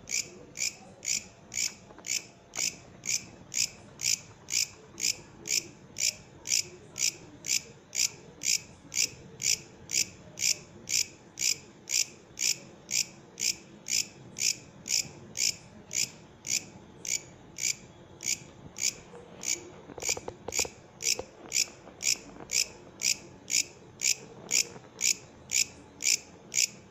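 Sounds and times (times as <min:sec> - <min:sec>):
katydid chirping: 0:00.1 - 0:08.6.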